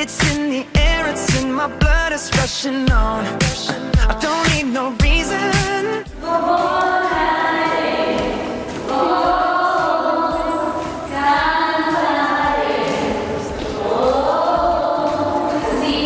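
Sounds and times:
choir singing in harmony: 6.0s - 16.0s.

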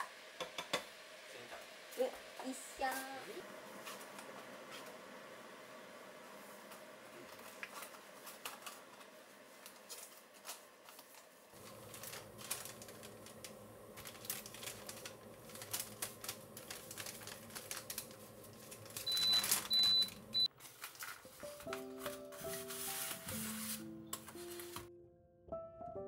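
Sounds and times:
paper packaging crinkling: 7.2s - 24.9s.

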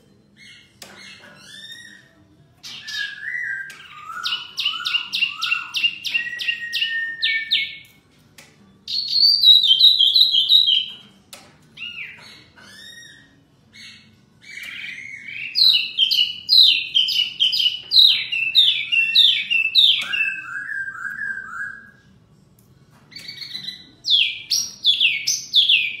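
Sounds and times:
birds whistling and chattering: 0.1s - 22.2s, 22.9s - 26.0s.

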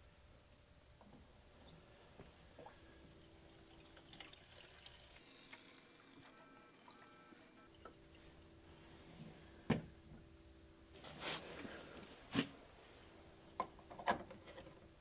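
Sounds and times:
fuel trickling into tank: 2.6s - 8.4s.

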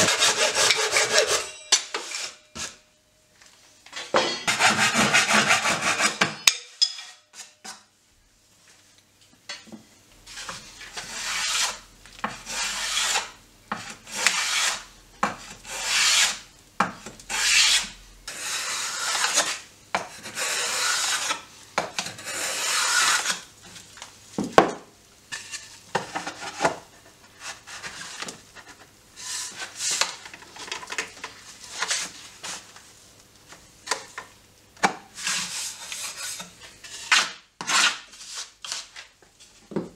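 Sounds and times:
sanding block rasping on wood: 0.0s - 1.4s, 4.5s - 6.2s, 10.3s - 11.8s, 12.5s - 14.9s, 15.5s - 16.4s, 17.3s - 19.6s, 20.2s - 21.4s, 22.2s - 23.4s
hand saw cutting wood: 0.0s - 2.8s, 4.4s - 6.4s, 10.3s - 16.4s, 17.3s - 21.4s, 22.0s - 23.5s, 35.2s - 39.0s.

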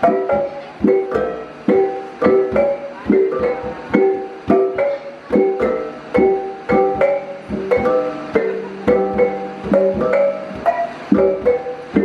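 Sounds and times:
gong-chime ensemble playing: 0.0s - 12.0s
large hanging gongs struck: 0.0s - 12.0s.

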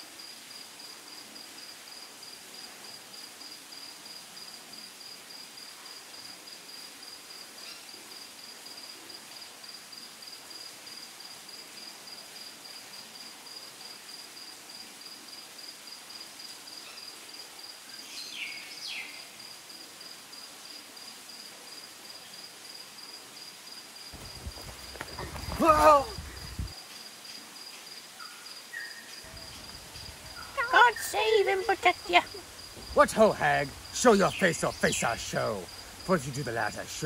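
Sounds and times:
faint hiss: 0.0s - 37.0s
insect chirping rapidly: 22.6s - 37.0s.

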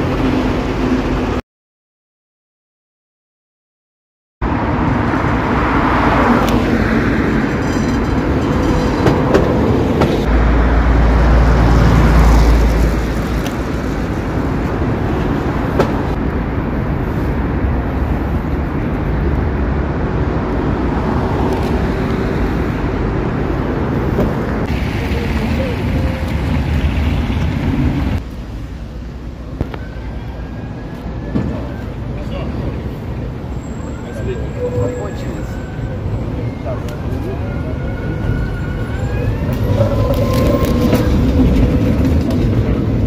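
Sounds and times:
tram wheels rumbling on rails: 0.0s - 1.4s, 4.4s - 43.0s.

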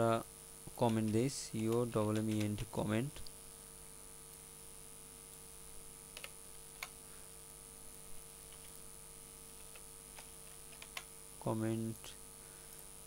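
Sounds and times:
electrical hum: 0.0s - 13.0s
keyboard and mouse clicks: 0.8s - 3.4s, 6.1s - 7.0s, 9.6s - 11.1s.

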